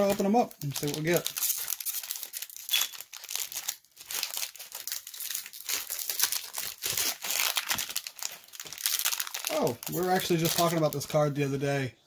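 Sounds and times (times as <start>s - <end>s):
foil wrapper crinkling and tearing: 0.0s - 11.2s.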